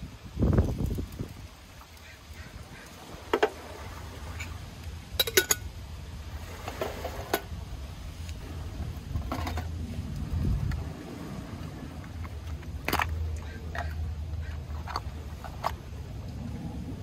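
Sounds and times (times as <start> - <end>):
metal cookware clinking: 5.2 - 5.7.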